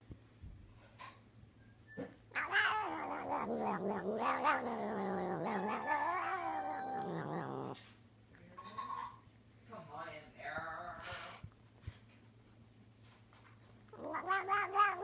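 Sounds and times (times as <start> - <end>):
cat yowling: 2.4 - 7.8, 13.9 - 15.0.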